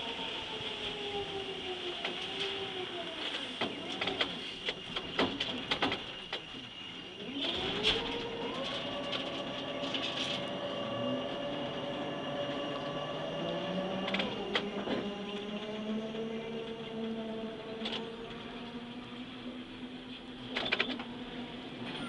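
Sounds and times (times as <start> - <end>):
crane drive whine: 0.0 - 22.0
crane machinery clicks and knocks: 3.6 - 6.7, 20.5 - 21.2.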